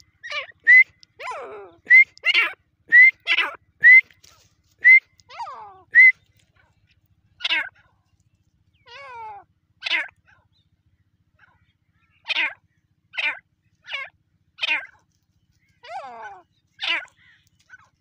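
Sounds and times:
francolin calling: 0:00.0 - 0:04.2, 0:04.8 - 0:06.4, 0:07.4 - 0:07.8, 0:08.8 - 0:10.4, 0:12.2 - 0:18.0.

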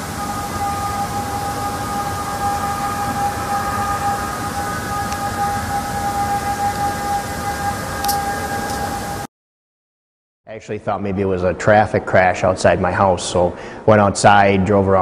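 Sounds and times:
horn-like drone in the sky: 0:00.0 - 0:09.3.

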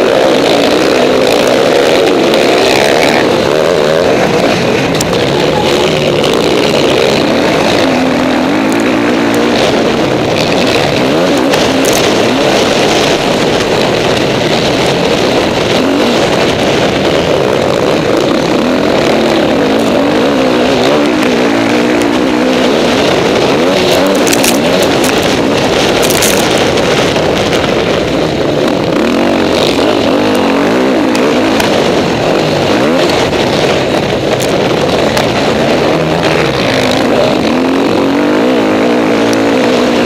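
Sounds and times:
motocross bike engine revving: 0:00.0 - 0:40.0
other motocross bikes: 0:00.0 - 0:40.0.

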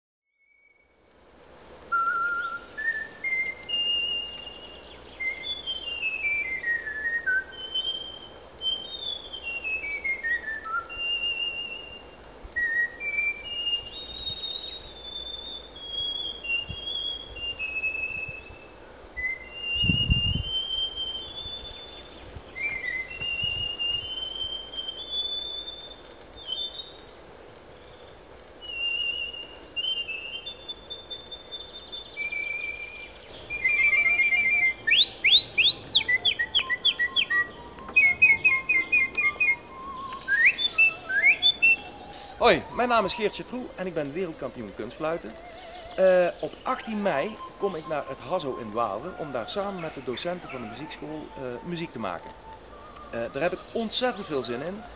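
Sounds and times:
person whistling a melody: 0:33.6 - 0:35.1, 0:36.0 - 0:43.6, 0:46.8 - 0:49.2, 0:51.2 - 0:53.5.

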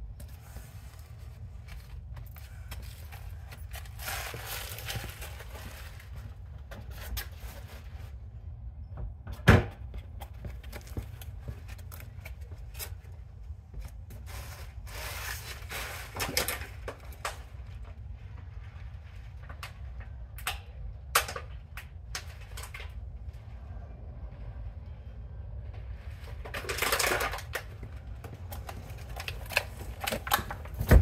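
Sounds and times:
steady low rumble: 0:00.0 - 0:31.0
knocks and scuffs: 0:09.0 - 0:14.7.

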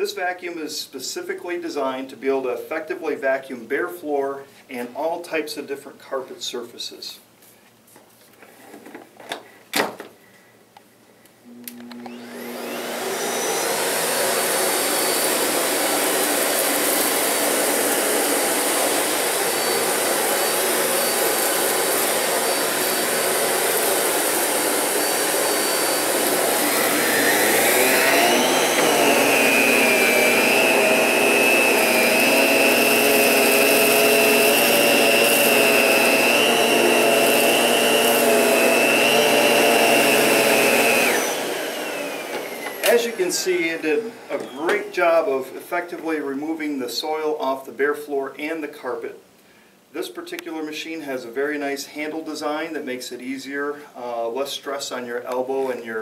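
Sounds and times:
upright vacuum cleaner running: 0:11.4 - 0:44.9.

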